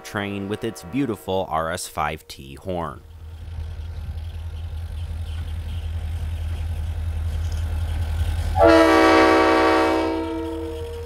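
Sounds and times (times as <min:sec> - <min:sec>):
locomotive horn chord: 0:00.0 - 0:06.2, 0:08.6 - 0:11.0
diesel locomotive engine rumble: 0:00.0 - 0:11.0.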